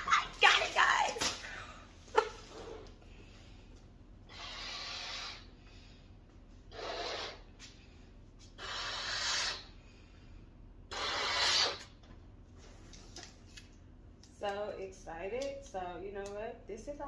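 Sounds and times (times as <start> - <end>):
breaths blowing up a balloon: 4.3 - 5.8, 6.7 - 7.8, 8.5 - 9.9, 10.9 - 12.0.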